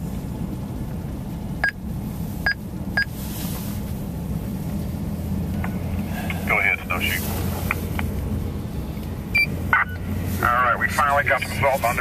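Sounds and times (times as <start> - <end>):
vehicle driving drone: 0.0 - 12.0
short electronic beeps: 9.3 - 10.0.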